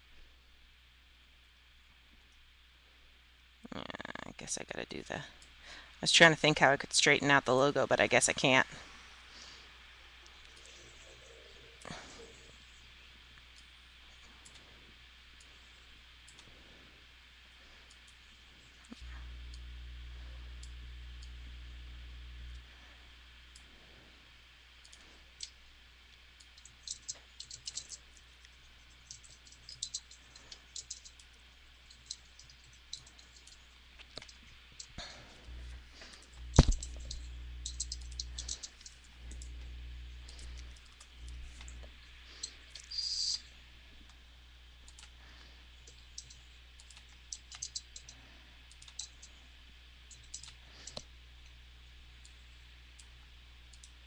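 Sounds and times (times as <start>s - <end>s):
low hum: 0.0s - 54.0s
mouse and keyboard clicking: 26.4s - 31.3s, 36.5s - 39.4s, 45.9s - 49.4s, 50.1s - 51.1s.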